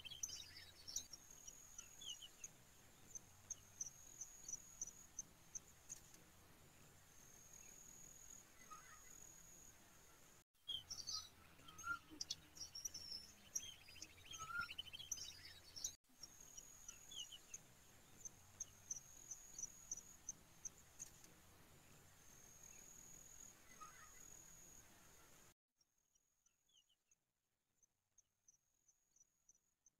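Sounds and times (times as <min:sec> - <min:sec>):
bird calls: 0:00.0 - 0:06.1, 0:07.5 - 0:09.2, 0:10.7 - 0:20.1, 0:23.6 - 0:24.4.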